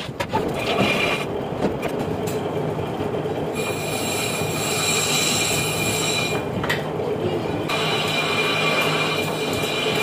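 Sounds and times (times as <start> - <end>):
lathe cutting metal squealing: 3.5 - 6.4, 7.7 - 10.0
high metallic ringing: 3.5 - 6.5, 7.7 - 10.0.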